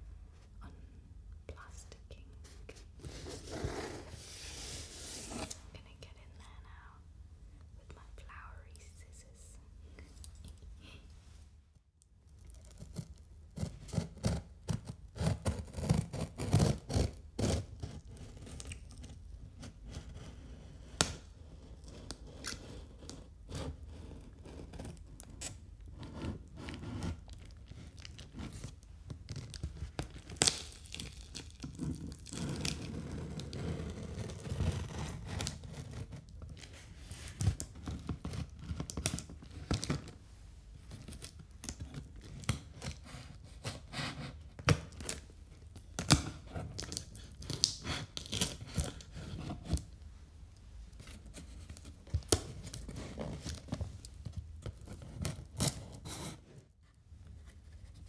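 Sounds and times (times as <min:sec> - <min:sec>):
scissors scraping tearing tape: 0:46.0 - 0:49.8, 0:55.1 - 0:56.3.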